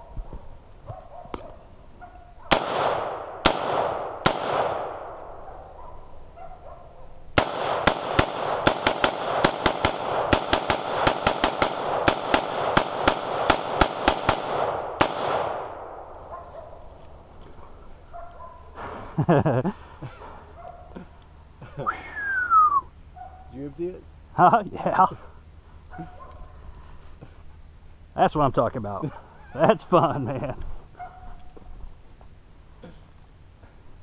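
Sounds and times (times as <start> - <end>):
rifle gunshots echoing: 2.5 - 5.8, 7.4 - 16.3.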